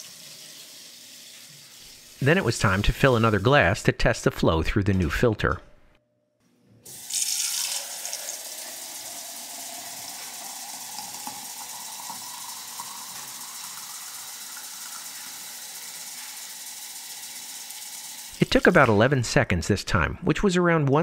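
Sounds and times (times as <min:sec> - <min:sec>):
faucet filling a glass: 0:00.0 - 0:03.6, 0:06.9 - 0:18.8.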